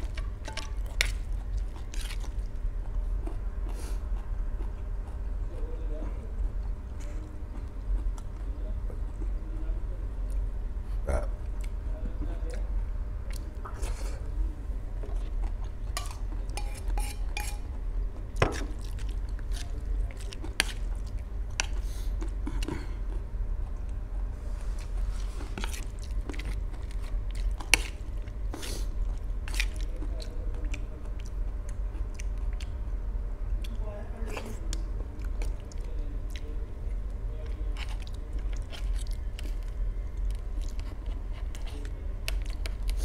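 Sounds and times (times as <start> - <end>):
person chewing noodles: 0.0 - 5.6, 15.0 - 23.9, 24.6 - 32.8, 37.7 - 43.0
metal fork clinking on plate: 16.0 - 17.7.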